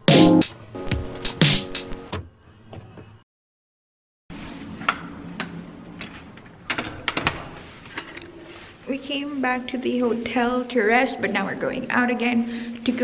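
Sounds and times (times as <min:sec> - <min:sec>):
background music: 0:00.0 - 0:02.1
indoor room noise: 0:04.3 - 0:13.0.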